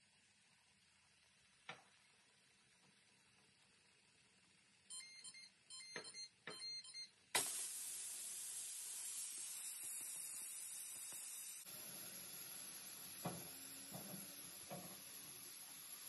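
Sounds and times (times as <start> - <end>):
steam hissing from vent: 7.4 - 16.0.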